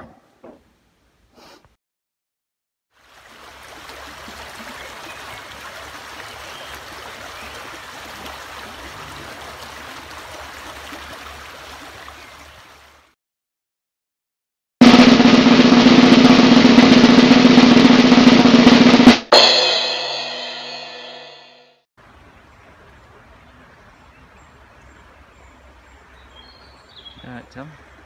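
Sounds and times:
stream flowing over stones: 3.0 - 13.1.

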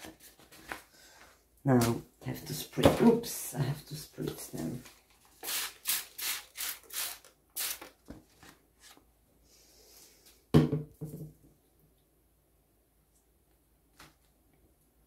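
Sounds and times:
spray bottle spritzing: 5.4 - 7.9
bottle knocking on table: 10.6 - 11.3.

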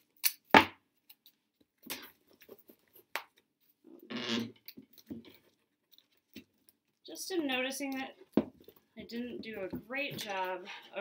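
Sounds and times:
crinkly clicks and rustles: 0.0 - 10.9.

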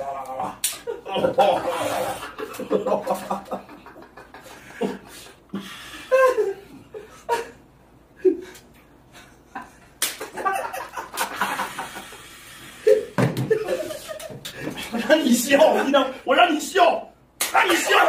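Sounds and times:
men laughing: 0.5 - 16.2.

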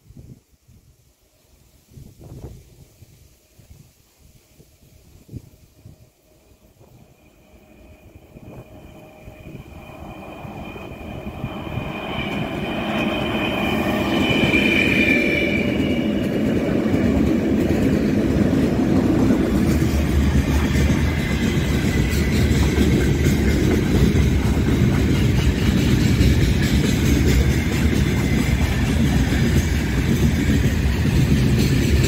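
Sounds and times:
electric locomotive passing: 4.8 - 32.0
high whine: 5.8 - 32.0
freight wagons rumbling past: 7.1 - 32.0.

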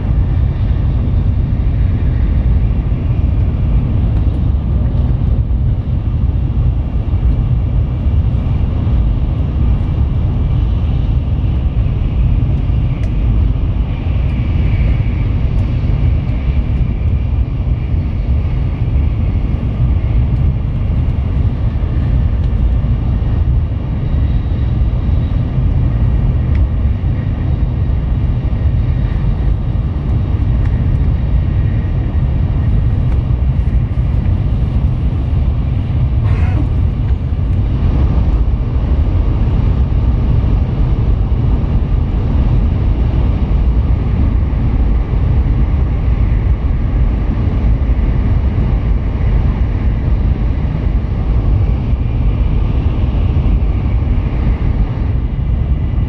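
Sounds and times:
train cabin deep rumble: 0.0 - 56.0.

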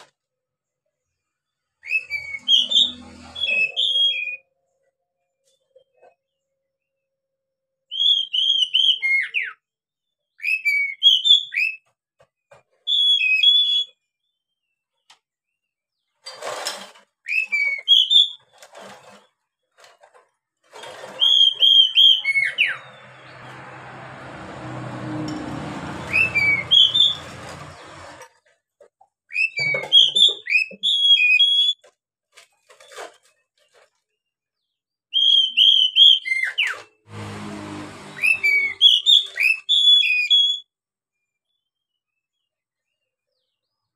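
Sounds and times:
bird singing whistled phrases: 35.1 - 36.6.

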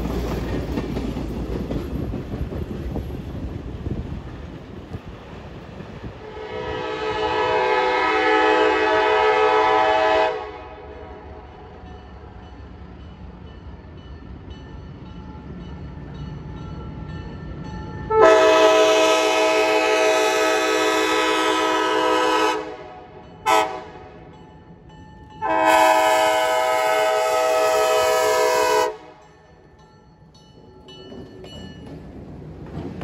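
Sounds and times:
faint train rumble: 0.0 - 33.0
locomotive air horn blasts: 6.2 - 11.6, 18.1 - 24.3, 25.4 - 29.3.

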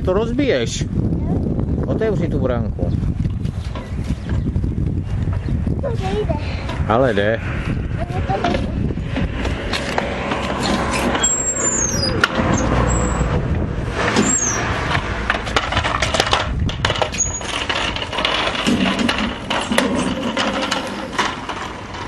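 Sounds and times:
footsteps: 8.4 - 11.3
gate squeaking: 10.6 - 13.4, 14.0 - 14.9, 17.0 - 21.2
metal gate clattering: 14.0 - 22.0.

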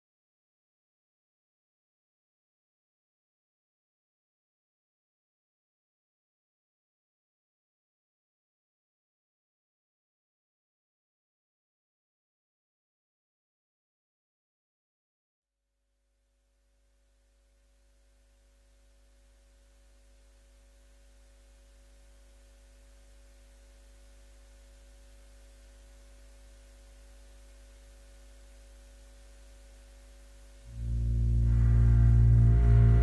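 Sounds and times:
deep steady drone: 30.1 - 33.0.

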